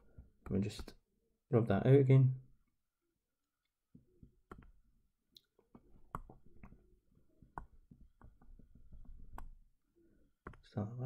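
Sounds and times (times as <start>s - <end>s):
stylus tapping on tablet: 3.9s - 9.8s, 10.4s - 10.6s.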